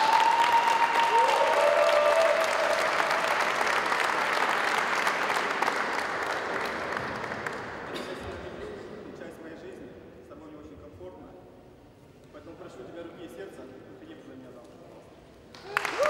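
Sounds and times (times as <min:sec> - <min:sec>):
long rising whoops: 0:00.0 - 0:02.9
crowd applauding and cheering: 0:00.0 - 0:08.1, 0:15.5 - 0:16.0.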